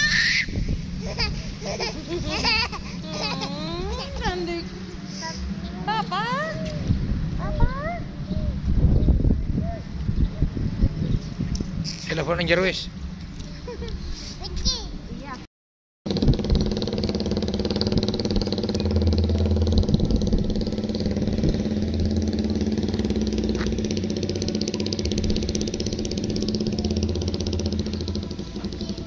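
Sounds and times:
vehicle engine idling: 16.1s - 29.0s.

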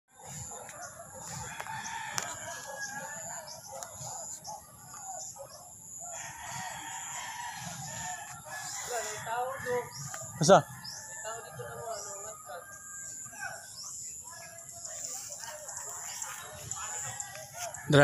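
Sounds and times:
chickens calling: 0.1s - 18.0s
rooster crowing: 1.1s - 3.8s, 6.0s - 13.6s.

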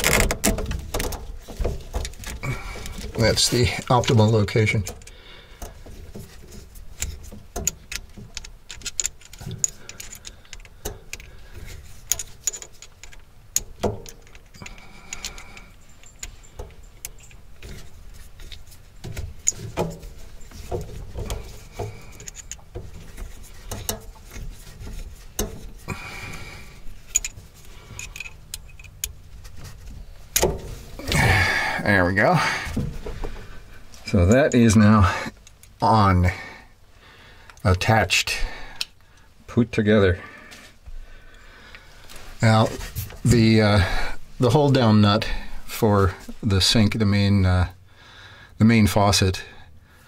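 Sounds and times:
small clicks taps and rustles: 0.0s - 30.8s.

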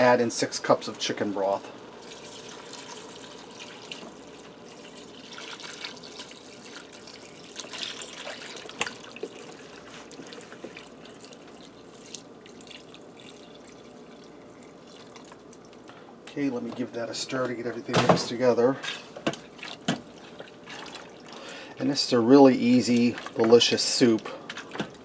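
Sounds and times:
liquid pouring into pot: 2.0s - 15.8s.

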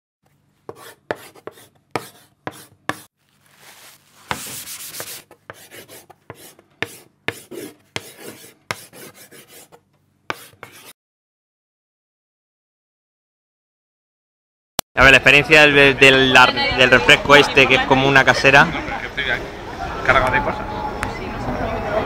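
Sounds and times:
chalk tapping and scratching: 0.7s - 11.0s.

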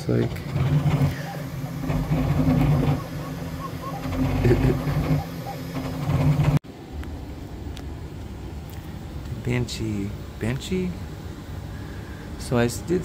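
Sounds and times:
three d printer humming and whirring: 0.0s - 6.6s
steady background noise: 0.0s - 13.0s.

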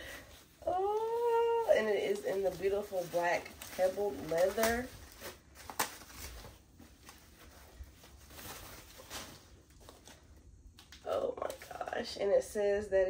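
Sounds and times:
paper wrapping rustling: 0.2s - 12.1s
sharp paper crinkles: 0.6s - 11.9s.

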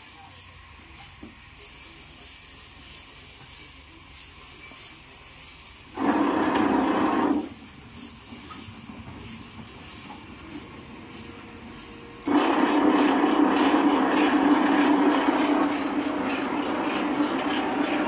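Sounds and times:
sawmill machinery running: 6.0s - 7.6s, 12.2s - 18.0s
loud rushing noise: 12.3s - 18.0s.

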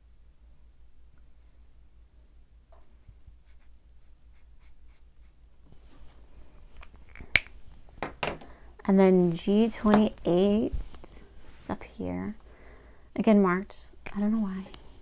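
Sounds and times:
marker scratching on paper: 3.4s - 5.4s.

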